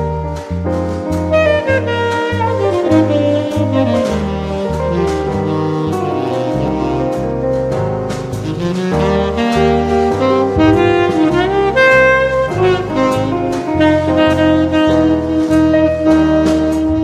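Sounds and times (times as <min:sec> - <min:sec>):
drums and cymbals: 0:00.0 - 0:17.0
saxophone melody: 0:00.0 - 0:17.0
stepping bass line: 0:00.0 - 0:17.0.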